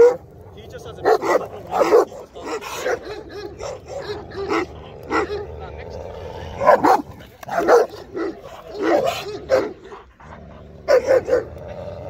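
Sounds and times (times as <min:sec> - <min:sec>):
large dog barking: 0:00.0 - 0:12.0.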